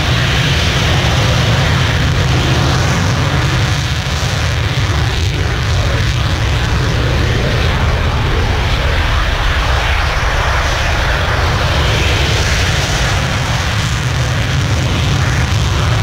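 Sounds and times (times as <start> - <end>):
jet engine running: 0.0 - 16.0.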